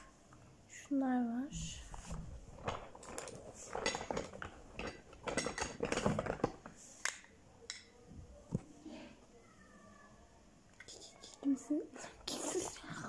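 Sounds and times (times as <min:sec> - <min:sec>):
plastic compacts clattering: 0:02.5 - 0:07.9.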